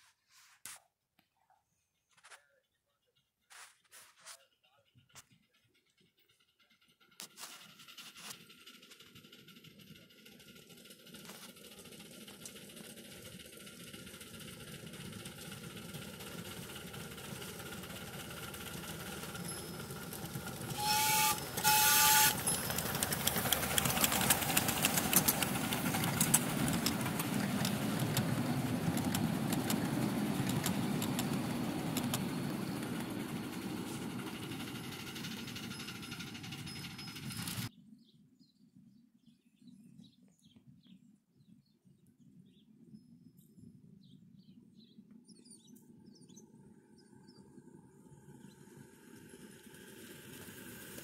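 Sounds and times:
steam locomotive exhaust clatter: 4.9s - 37.7s
steam whistle blasts: 20.7s - 22.6s.

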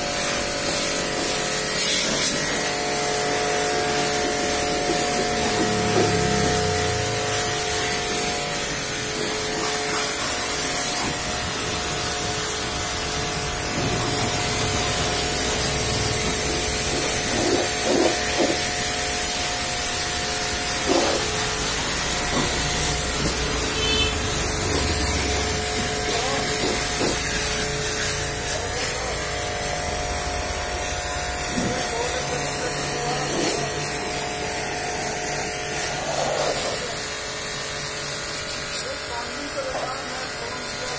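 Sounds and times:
pressure washer spraying: 0.0s - 40.9s.

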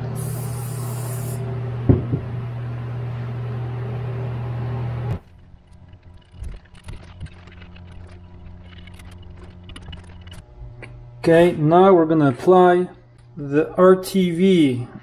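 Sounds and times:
aerosol spray hiss: 0.0s - 1.4s
electric machine hum: 0.0s - 15.0s.

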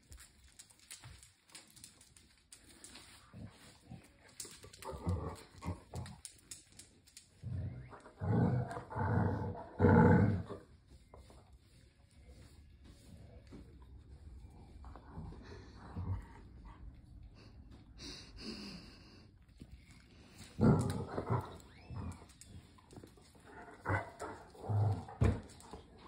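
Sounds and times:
dogs growling in play: 2.6s - 10.9s, 14.6s - 17.2s, 19.8s - 26.0s.

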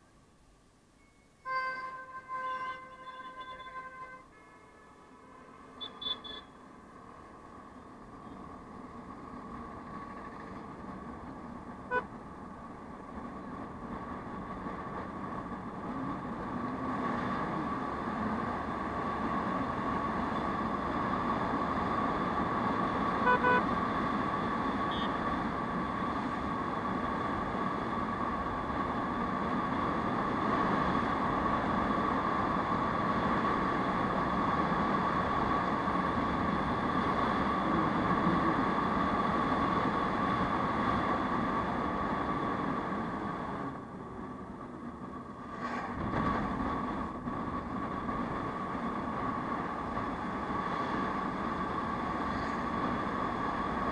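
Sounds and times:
vehicle horn toot: 1.4s - 6.6s, 11.9s - 12.1s, 23.2s - 23.6s, 24.9s - 25.2s.

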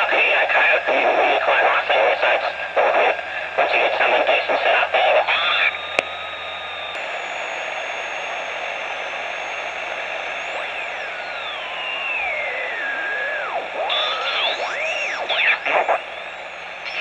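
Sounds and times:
garbled warbling radio tones: 0.0s - 6.4s, 10.5s - 17.0s
radio receiver hiss: 0.0s - 17.0s
heterodyne whistle: 5.5s - 17.0s.

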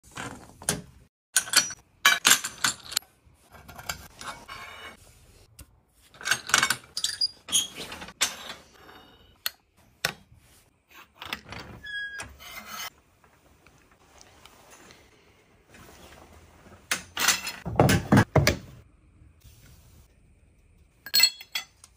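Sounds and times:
steel conduit scraping and clattering: 3.5s - 5.0s, 10.9s - 13.0s.

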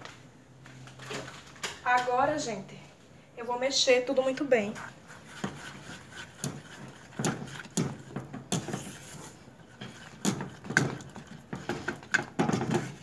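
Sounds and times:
spatula stirring thick mixture: 4.1s - 13.0s.

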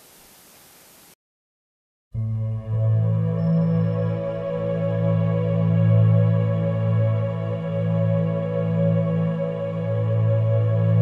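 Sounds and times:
ambient music with held tones: 2.2s - 11.0s.

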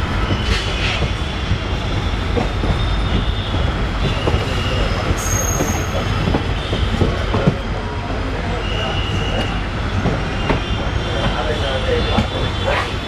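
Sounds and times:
train rumble: 0.0s - 13.0s
wheel squeals: 0.2s - 7.8s.

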